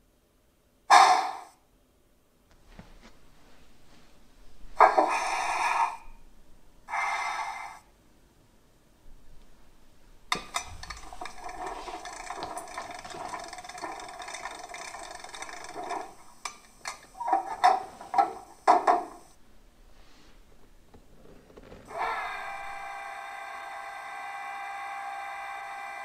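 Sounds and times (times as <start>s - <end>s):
mechanical rattling and clicking: 10.3s - 19.3s.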